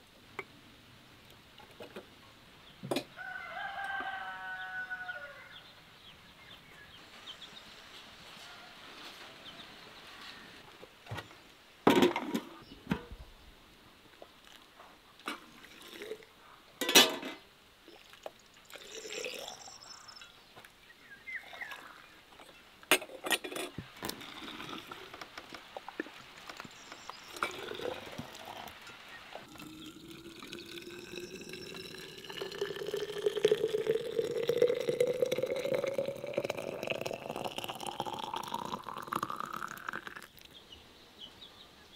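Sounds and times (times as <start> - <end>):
liquid pouring into jars: 15.5 - 16.2, 17.9 - 19.9, 24.0 - 25.1, 27.3 - 28.8, 29.4 - 40.5.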